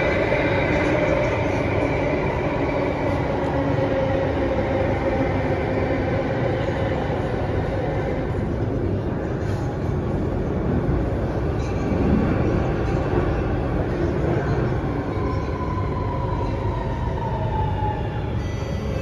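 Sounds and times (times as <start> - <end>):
metro train wheels rumbling: 0.0 - 19.0.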